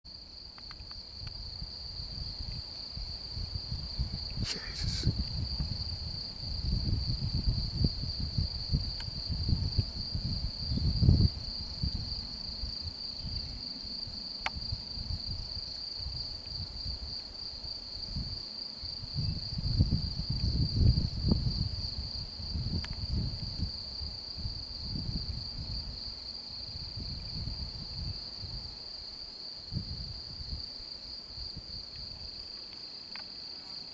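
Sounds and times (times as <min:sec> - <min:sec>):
wind buffeting microphone: 0:01.2 - 0:17.2, 0:18.0 - 0:18.4, 0:19.0 - 0:28.8, 0:29.7 - 0:30.7
insect trilling: 0:04.4 - 0:05.3.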